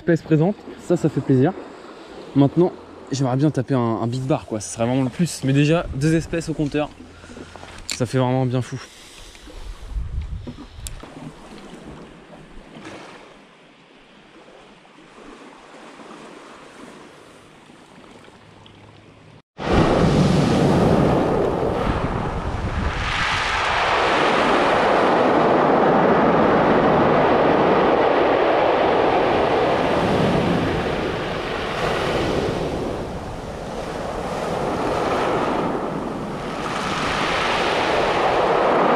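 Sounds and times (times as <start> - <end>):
waves breaking on pebble beach: 19.6 - 38.9.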